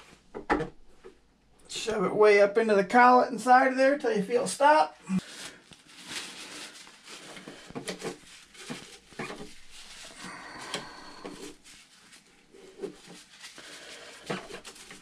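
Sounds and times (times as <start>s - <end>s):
paper towel rustling: 5.2s - 15.0s.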